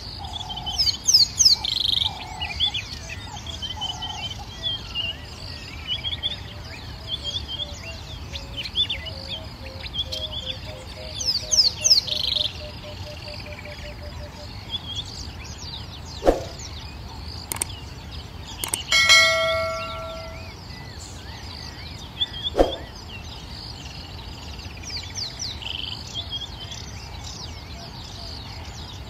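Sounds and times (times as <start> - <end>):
small birds chirping: 0.0 - 29.0
sharp clicks: 17.5 - 17.8, 18.6 - 20.5
bright bell-like ding: 18.8 - 20.5.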